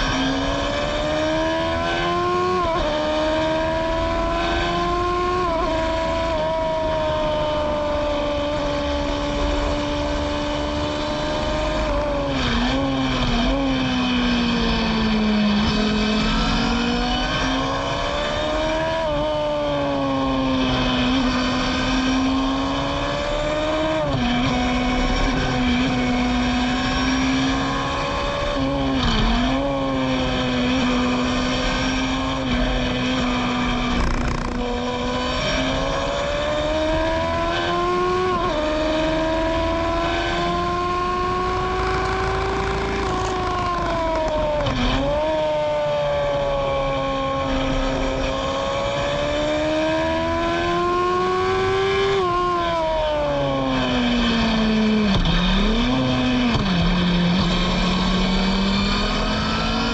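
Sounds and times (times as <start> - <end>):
racing car engine revving: 0.0 - 59.9.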